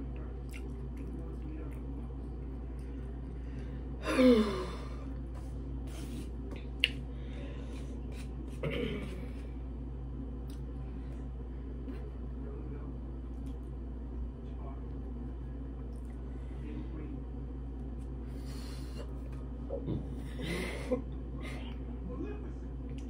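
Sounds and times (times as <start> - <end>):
low hum: 0.0 - 23.0
woman sighing: 4.0 - 5.0.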